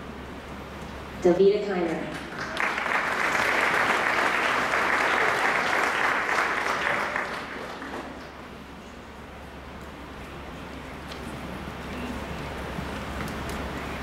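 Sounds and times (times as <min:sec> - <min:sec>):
audience applauding: 0:02.1 - 0:08.5.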